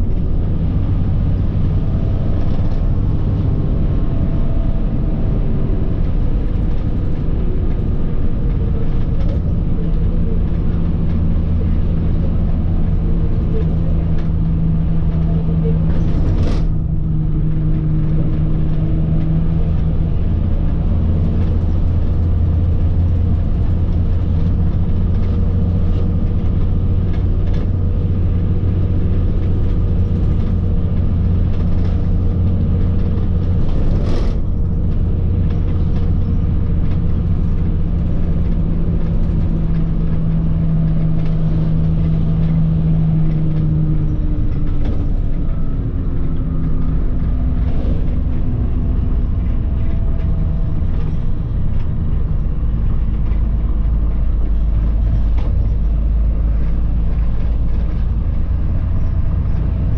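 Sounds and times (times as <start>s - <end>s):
bus engine running: 0.0s - 59.9s.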